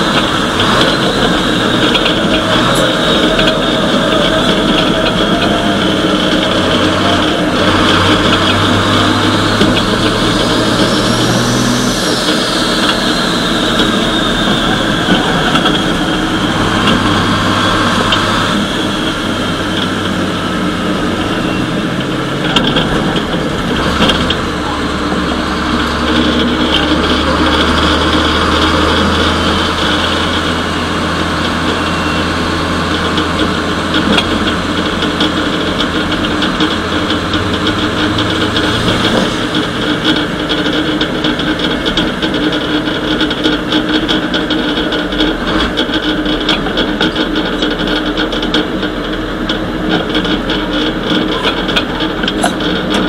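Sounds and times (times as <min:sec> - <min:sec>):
diesel engine shifting gears: 0:00.0 - 0:53.0
high whine: 0:00.0 - 0:53.0.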